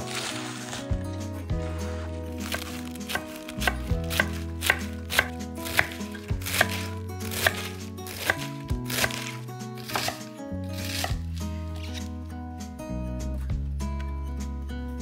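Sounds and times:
knife chopping cabbage: 2.4s - 12.1s.

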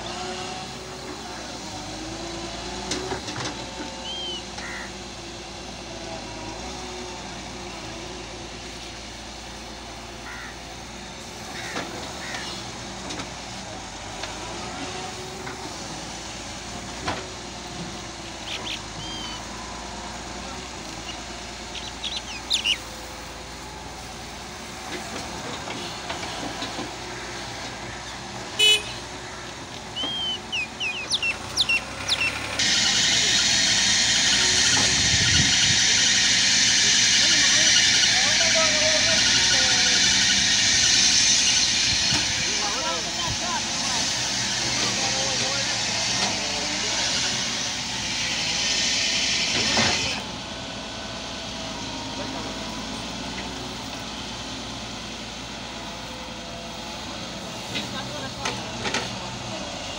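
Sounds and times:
distant excavator engine hum: 0.0s - 59.9s
loud steady rush: 3.4s - 59.9s
birds chirping: 3.6s - 5.0s, 18.0s - 24.3s, 25.0s - 43.2s
loud hydraulic hiss: 3.7s - 59.9s
short horn toot: 28.6s - 29.0s.

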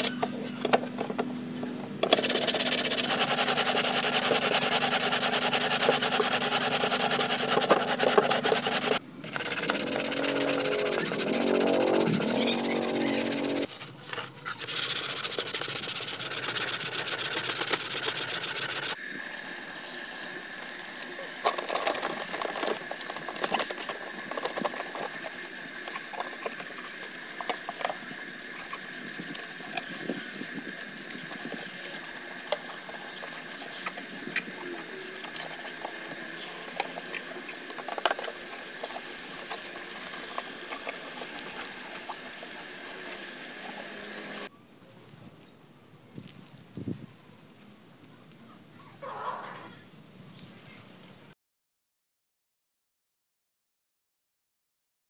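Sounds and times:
water splashing onto stones: 20.8s - 44.5s
water poured over plastic panel: 21.4s - 44.5s.

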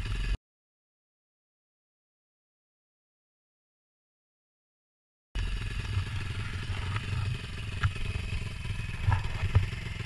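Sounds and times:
small engine idling: 0.0s - 0.4s, 5.4s - 10.0s.

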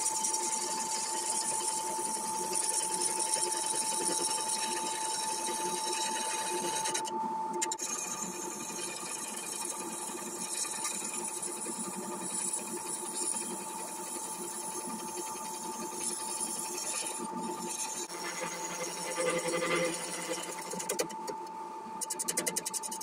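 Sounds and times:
turning tool cutting wood: 0.0s - 7.1s, 15.0s - 21.3s
wood lathe whining: 0.0s - 7.1s, 7.8s - 21.2s.

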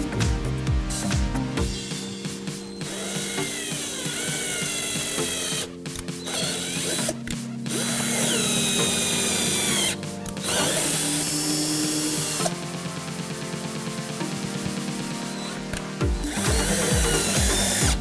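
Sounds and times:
cordless drill motor whining: 1.7s - 12.5s, 15.3s - 18.0s.

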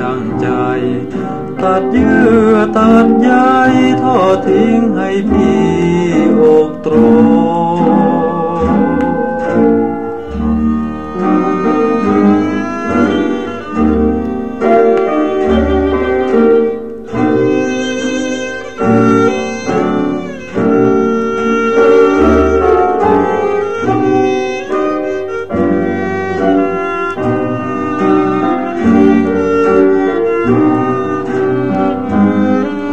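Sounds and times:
strings playing melody: 0.0s - 32.9s
low bass line: 6.9s - 11.2s.

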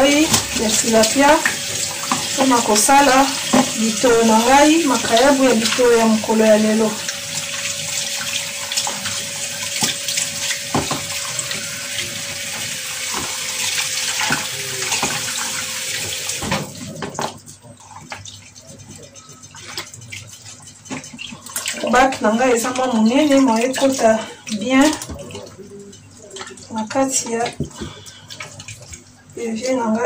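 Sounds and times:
tap running into sink: 0.0s - 17.4s
small water splashes: 0.0s - 29.8s.

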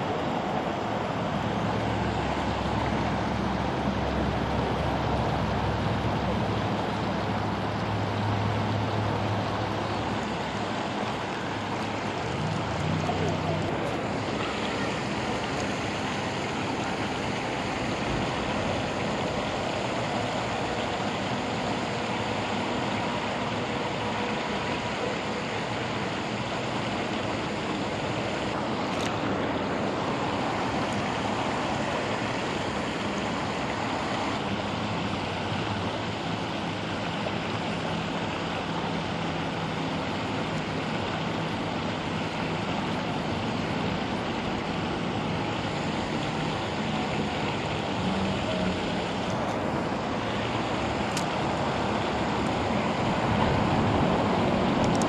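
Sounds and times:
water rushing over spillway: 0.0s - 55.0s.

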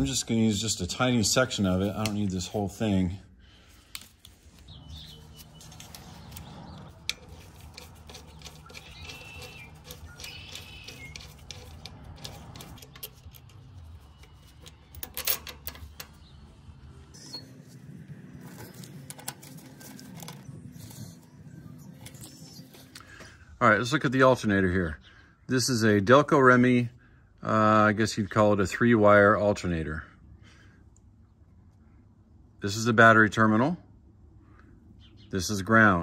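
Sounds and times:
hand tools clicking and clacking: 5.7s - 16.3s.

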